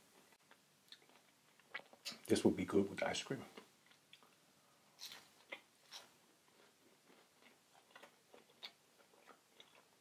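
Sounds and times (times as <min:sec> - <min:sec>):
faint chewing: 0:00.2 - 0:02.3, 0:03.5 - 0:10.0.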